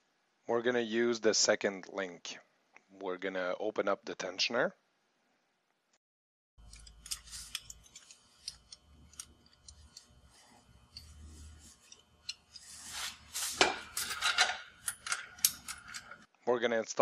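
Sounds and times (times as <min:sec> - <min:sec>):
small metal clicks and rubs: 0:06.6 - 0:16.3.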